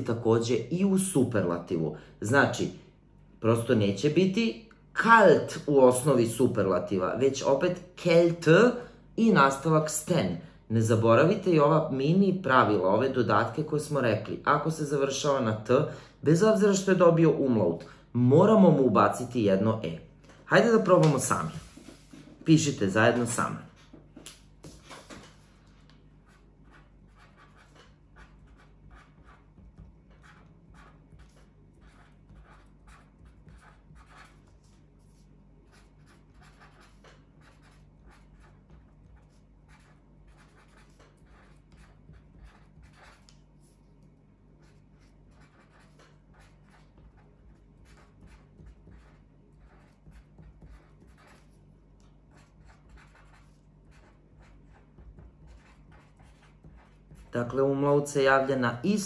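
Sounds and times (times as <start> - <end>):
pen scratching on paper: 24.6 - 57.6.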